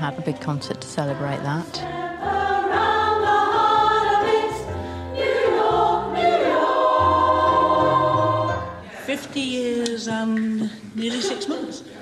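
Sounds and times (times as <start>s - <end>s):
women's choir singing: 0.0s - 9.2s.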